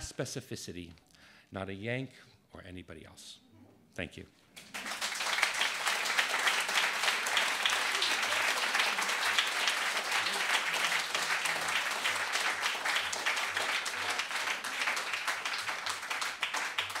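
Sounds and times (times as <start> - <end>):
audience applauding: 4.6 - 17.0.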